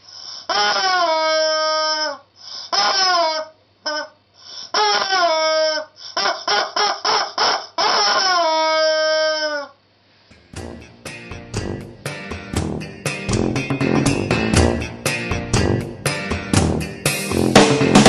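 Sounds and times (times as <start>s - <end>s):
rubber chicken toy squawking: 0.5s - 4.2s, 4.8s - 9.8s.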